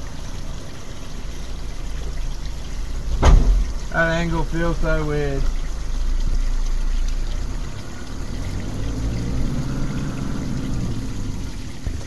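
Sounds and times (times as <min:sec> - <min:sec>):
tyre and road noise on dirt: 0:00.0 - 0:12.0
vehicle engine running: 0:03.7 - 0:12.0.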